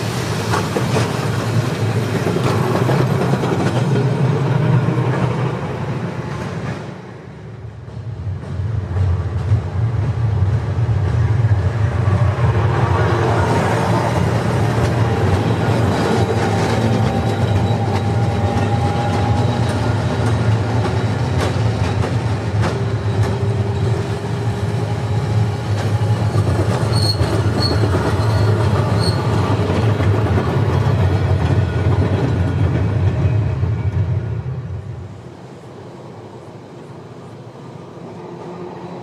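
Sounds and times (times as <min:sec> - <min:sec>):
tram wheels rumbling on rails: 0:00.0 - 0:39.0
wheels squealing on curve: 0:26.7 - 0:29.5.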